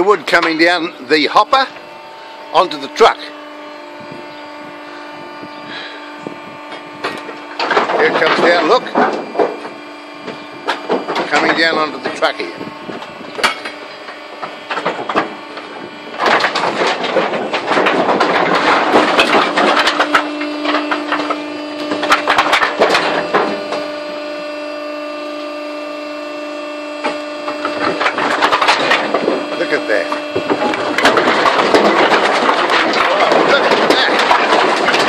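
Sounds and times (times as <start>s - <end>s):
steady machine hum: 0.0s - 35.0s
wood waste clattering into bin: 6.7s - 24.2s, 27.0s - 35.0s.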